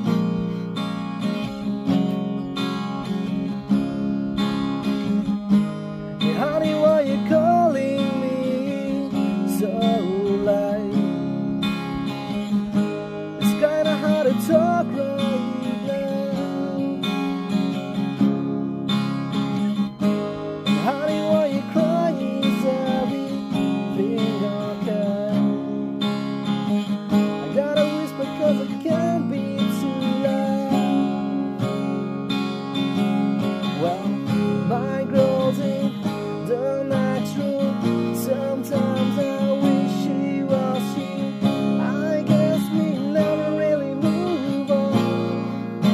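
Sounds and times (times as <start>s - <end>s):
acoustic guitar strumming: 0.0s - 45.9s
man singing: 6.2s - 11.5s, 13.4s - 17.4s, 20.7s - 25.9s, 27.3s - 31.5s, 33.6s - 45.9s.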